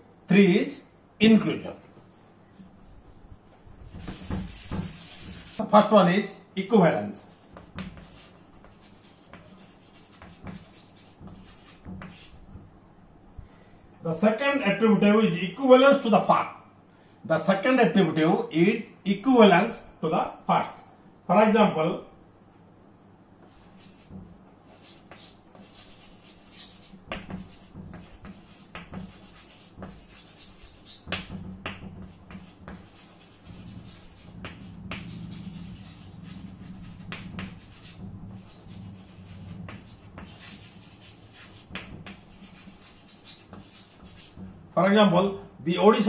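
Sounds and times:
chalk writing on chalkboard: 0:02.6 - 0:05.7, 0:07.3 - 0:12.6, 0:23.4 - 0:44.8.

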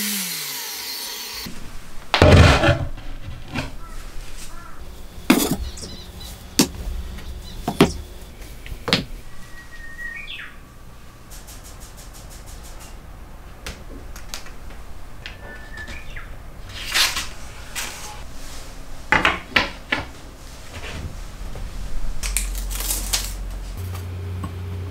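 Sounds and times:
bird chirping: 0:03.8 - 0:12.9, 0:15.3 - 0:16.4
boards knocking on wooden bench: 0:07.7 - 0:08.0.

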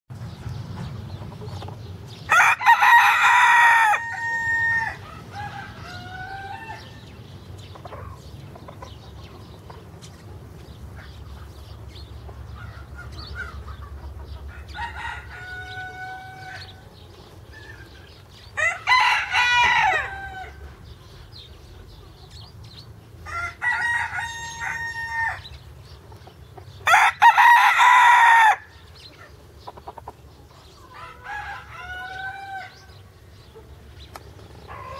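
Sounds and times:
chicken calls: 0:00.8 - 0:34.9
rooster crowing: 0:02.3 - 0:07.1, 0:14.5 - 0:16.8, 0:18.6 - 0:20.7, 0:23.2 - 0:25.5, 0:26.9 - 0:28.8, 0:30.9 - 0:33.0.

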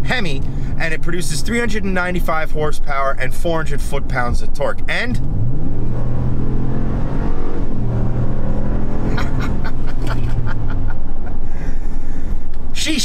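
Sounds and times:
truck engine accelerating hard: 0:05.0 - 0:12.6
gear change: 0:05.2 - 0:12.8.

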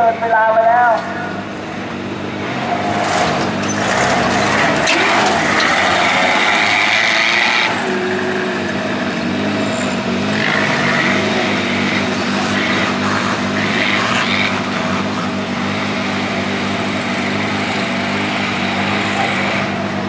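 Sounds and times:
truck engine revving: 0:00.0 - 0:20.0.

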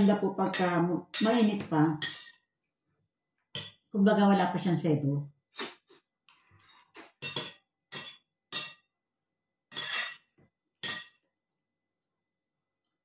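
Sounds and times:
cutlery clinking on plates: 0:07.1 - 0:08.8, 0:09.7 - 0:11.2.

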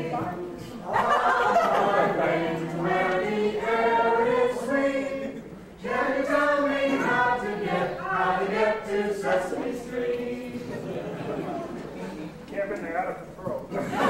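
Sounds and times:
group singing: 0:00.0 - 0:12.0.

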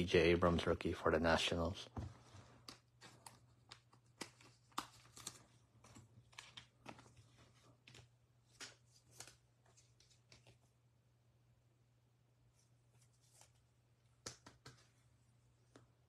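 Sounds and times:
cards snapping and tapping: 0:02.6 - 0:07.2, 0:07.8 - 0:10.6, 0:14.2 - 0:15.0.

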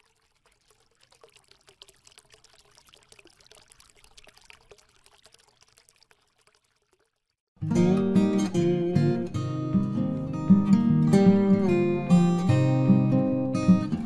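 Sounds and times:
crackling drips: 0:00.0 - 0:07.5
water trickling and pouring: 0:00.0 - 0:07.6.

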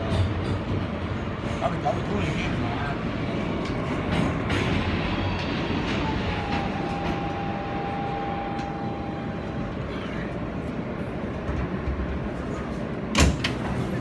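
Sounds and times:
subway car wheels rumbling: 0:00.0 - 0:14.0
thin steady whine: 0:05.0 - 0:12.2.

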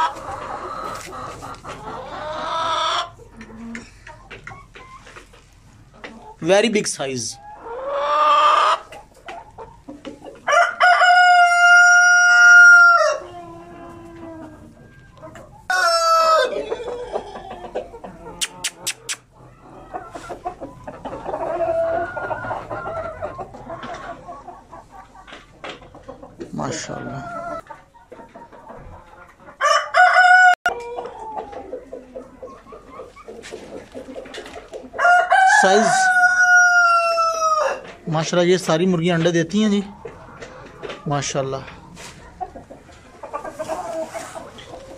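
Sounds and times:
hens clucking: 0:00.0 - 0:44.9
rooster crowing: 0:10.5 - 0:13.4, 0:15.7 - 0:17.2, 0:29.6 - 0:31.4, 0:35.0 - 0:37.8.

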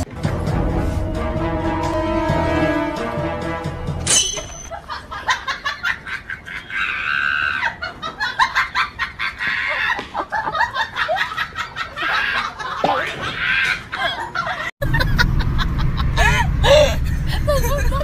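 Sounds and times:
background music: 0:00.0 - 0:04.7.

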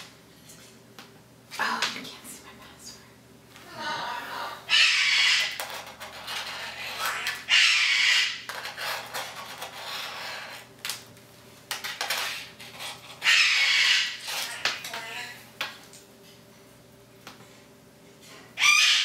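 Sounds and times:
parrot screeching: 0:04.0 - 0:10.6, 0:12.1 - 0:15.4, 0:18.6 - 0:19.0.

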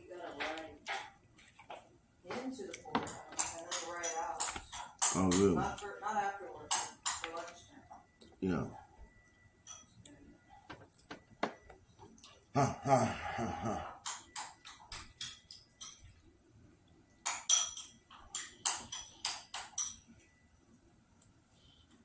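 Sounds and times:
voiced murmur: 0:12.5 - 0:14.0
fork clinking on a plate: 0:17.2 - 0:20.1.

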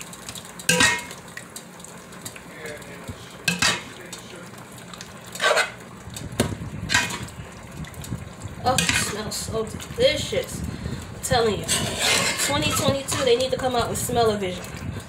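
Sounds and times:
spoon clanking against pot: 0:00.7 - 0:01.2, 0:03.5 - 0:03.9, 0:08.7 - 0:09.2
spoon stirring thick gravy: 0:03.0 - 0:05.9, 0:08.7 - 0:09.8, 0:11.3 - 0:13.7.

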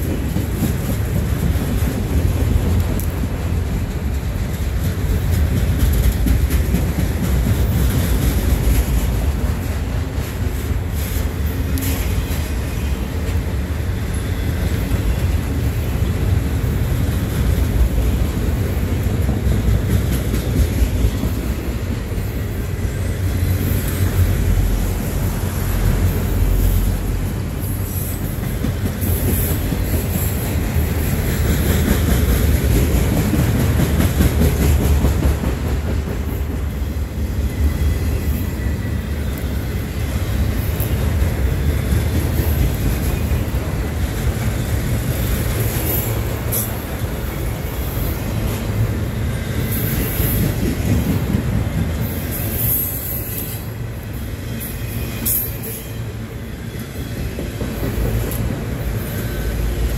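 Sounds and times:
train wheels rumbling on rails: 0:00.0 - 0:59.9
faint high wheel squeal: 0:36.8 - 0:40.0, 0:52.0 - 0:57.2.

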